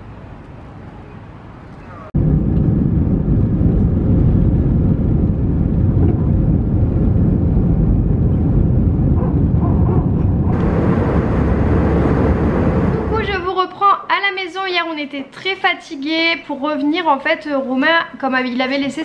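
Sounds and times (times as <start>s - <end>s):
jet engines roaring in cabin: 0.4s - 13.6s.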